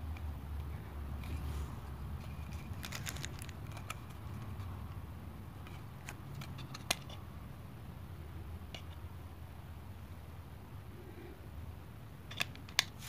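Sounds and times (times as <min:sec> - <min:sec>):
handling rustle: 0:01.2 - 0:04.8.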